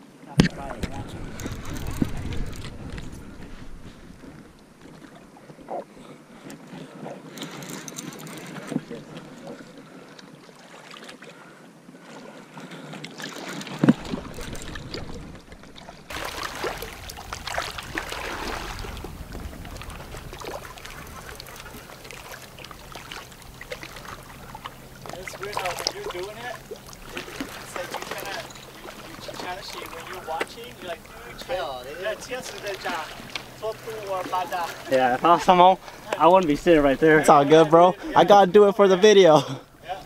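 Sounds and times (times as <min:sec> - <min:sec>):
water around a boat: 0:00.0 - 0:40.0
wind on microphone: 0:00.4 - 0:05.8, 0:13.8 - 0:25.7.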